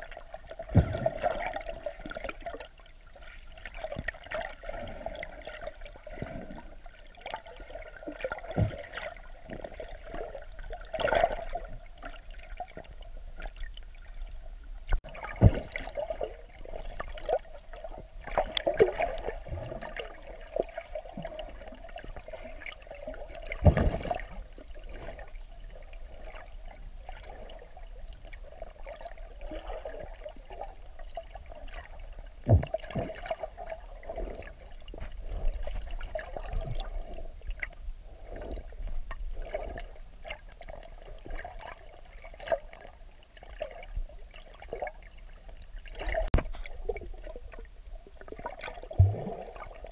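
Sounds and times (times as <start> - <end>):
muffled underwater sound: 0.0 - 49.9.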